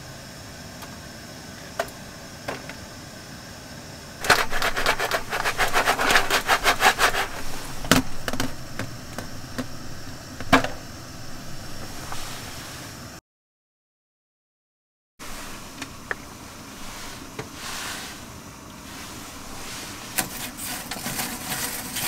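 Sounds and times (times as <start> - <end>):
popcorn popping in metal tin: 4.2 - 12.1, 20.1 - 22.0.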